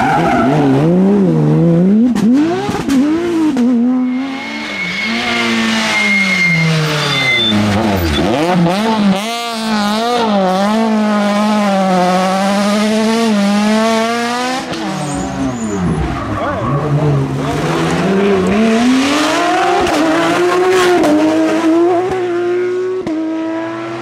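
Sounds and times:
rally car engine accelerating: 0:00.0 - 0:24.0
second rally car engine revving: 0:00.2 - 0:24.0
thin high squeal: 0:04.0 - 0:08.2.

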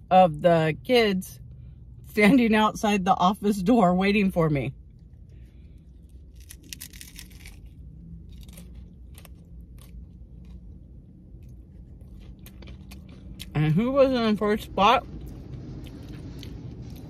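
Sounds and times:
low steady hum: 0:00.0 - 0:17.0
chewing crispy fried food: 0:04.8 - 0:13.8, 0:14.6 - 0:17.0.

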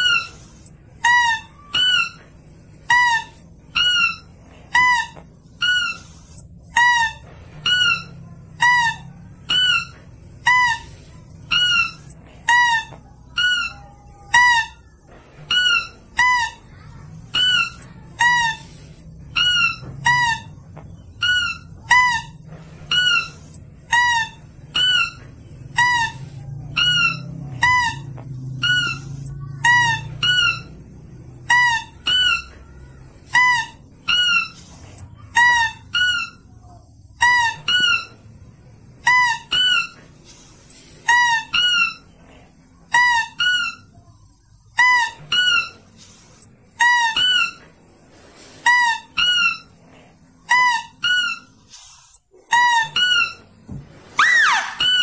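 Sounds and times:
high squeaky lure calls: 0:00.0 - 0:02.2, 0:02.9 - 0:14.8, 0:15.5 - 0:25.2, 0:25.8 - 0:30.8, 0:54.2 - 0:55.0.

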